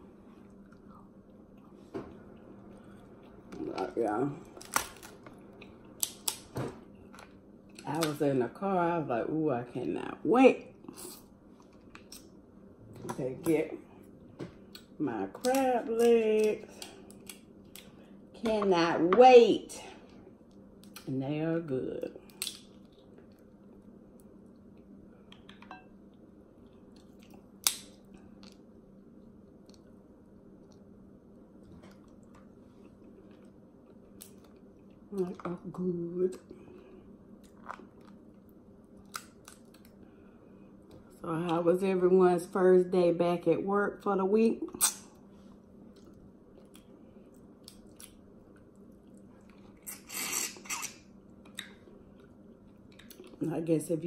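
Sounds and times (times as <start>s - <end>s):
soft chewing: 0.0s - 3.6s, 10.7s - 12.4s, 22.2s - 35.4s, 36.3s - 41.2s, 45.1s - 53.4s.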